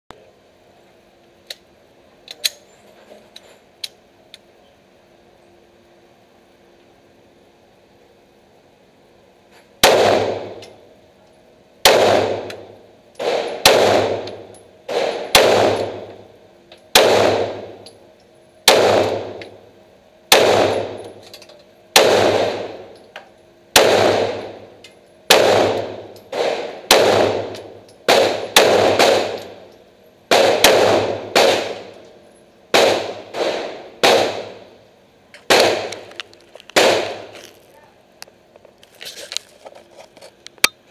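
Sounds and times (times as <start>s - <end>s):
pistol shots with echo: 9.8s - 10.8s, 11.8s - 16.3s, 16.9s - 17.8s, 18.6s - 19.6s, 20.3s - 21.2s, 21.9s - 23.0s, 23.7s - 29.7s, 30.3s - 32.0s, 32.7s - 34.7s, 35.5s - 36.1s, 36.8s - 37.3s.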